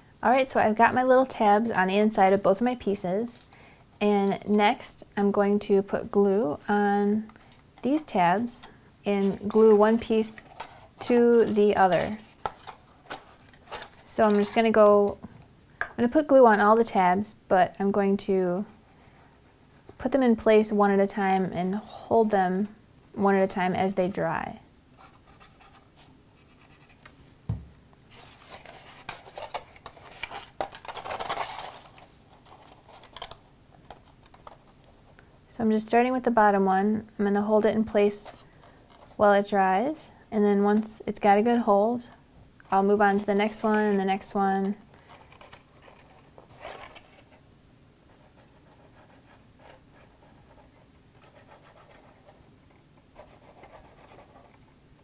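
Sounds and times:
cardstock rustling and scraping: 8.6 - 15.2, 28.1 - 34.9, 43.0 - 47.4.

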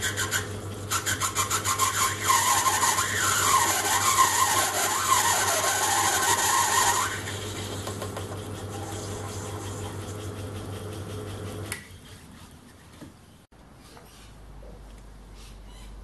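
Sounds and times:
lathe motor hum: 5.8 - 11.7.

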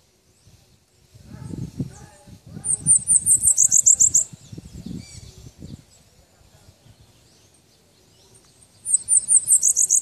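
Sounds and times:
songbird chirpy song: 0.0 - 10.0
faint high chirps: 7.2 - 10.0.

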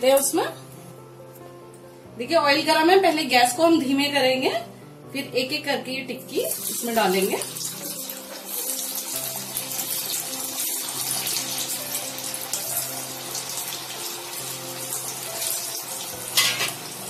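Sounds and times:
soft background music: 0.0 - 17.0
patties deep-frying in oil: 6.3 - 17.0.

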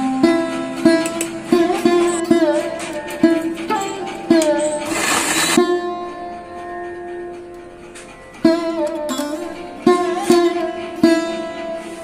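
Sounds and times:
plucked string instrument notes: 0.0 - 12.0.

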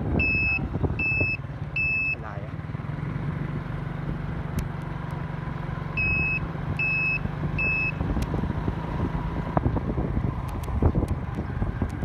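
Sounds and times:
motorcycle engine running: 0.0 - 12.0
short high electronic beeps: 6.0 - 8.0.

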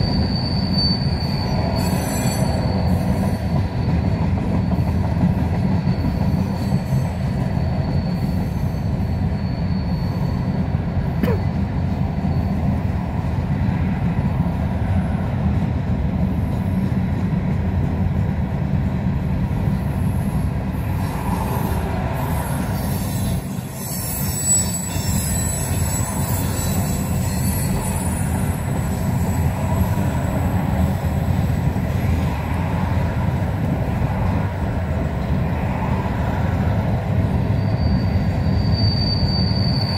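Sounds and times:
high wheel squeal: 0.0 - 5.0, 5.8 - 11.0, 21.0 - 30.8, 37.2 - 39.9
train wheels rumbling on rails: 0.0 - 39.9.

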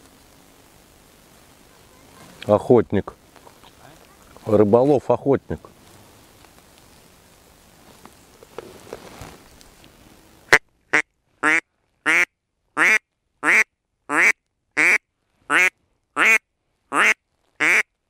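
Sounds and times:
duck quacking: 10.9 - 17.9.

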